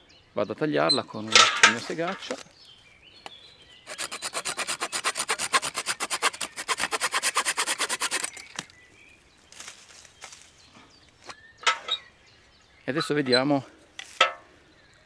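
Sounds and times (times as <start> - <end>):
saw cutting wooden branch: 3.9 - 8.7.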